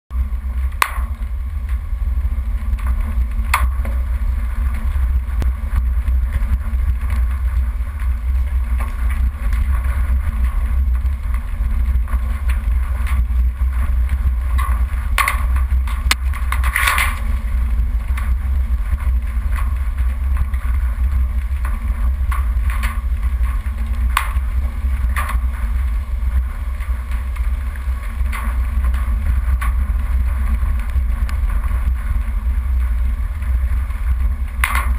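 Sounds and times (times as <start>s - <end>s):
vehicle engine and tyres rumbling: 0.1s - 34.9s
knocks and rattles over bumps: 0.5s - 34.9s.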